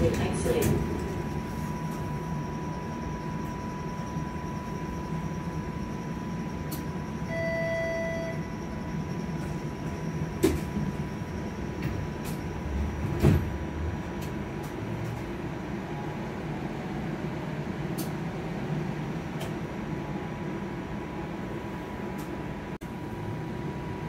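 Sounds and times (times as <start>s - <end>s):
streetcar rumble: 0.0s - 24.0s
faint high whine: 0.1s - 13.1s
electronic beep: 1.5s - 10.2s.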